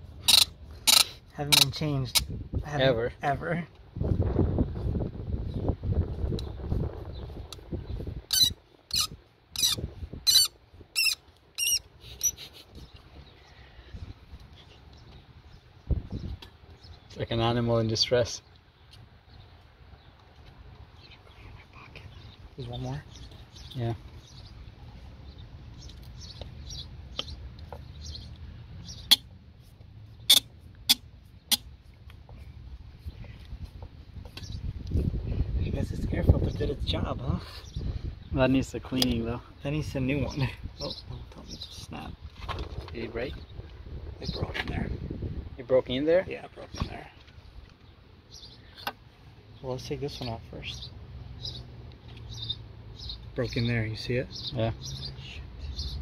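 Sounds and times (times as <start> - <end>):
screw squeaking: 0.2 - 2.3, 8.3 - 12.4.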